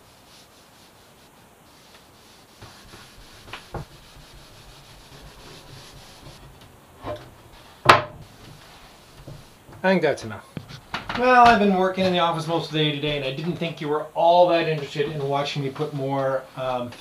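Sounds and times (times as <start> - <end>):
hand sanding wood: 0.0 - 6.6
wooden panel set down: 7.0 - 8.3.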